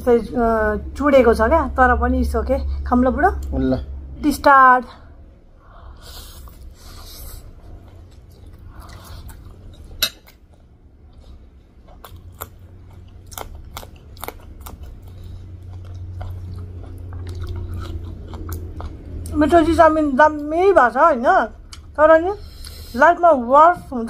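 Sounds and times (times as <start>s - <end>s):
wet chewing and lip smacks: 7.9s - 19.4s.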